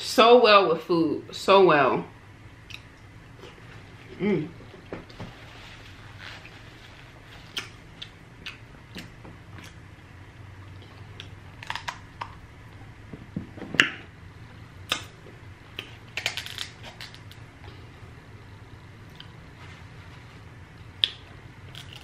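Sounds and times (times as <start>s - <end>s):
crab shell cracking: 11.6s - 12.4s, 16.2s - 17.4s.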